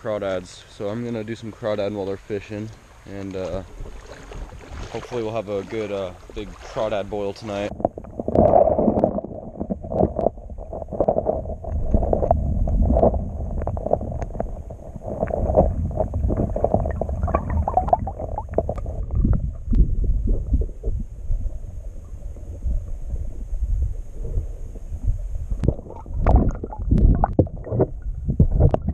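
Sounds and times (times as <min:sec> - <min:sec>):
muffled underwater river churning: 0:00.0 - 0:28.9.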